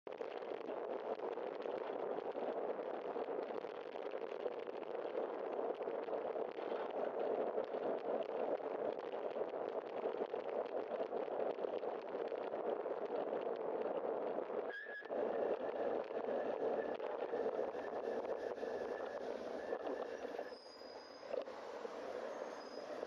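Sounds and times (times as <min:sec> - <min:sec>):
wind and tyre noise: 0:00.1 - 0:23.0
bicycle brakes squealing: 0:19.6 - 0:21.4, 0:22.4 - 0:23.0.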